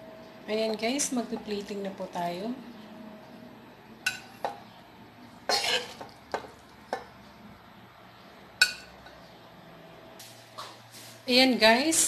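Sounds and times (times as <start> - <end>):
metal spoon clinking on pan: 4.1 - 4.6, 8.6 - 9.0.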